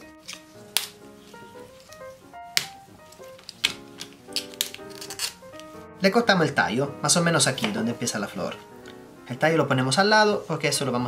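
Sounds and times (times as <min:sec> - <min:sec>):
artichoke leaves snapping: 0:00.0 - 0:05.8
light background music: 0:00.0 - 0:11.0.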